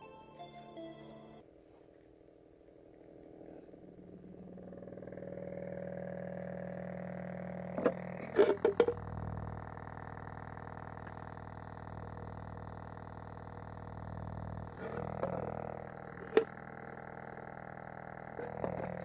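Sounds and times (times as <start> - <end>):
speaker buzzing distorted low tone: 2.4 - 19.0.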